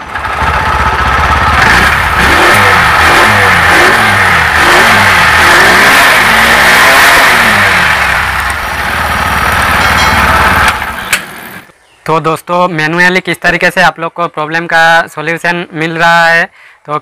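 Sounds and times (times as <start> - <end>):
moped engine revving: 0.0 - 11.7.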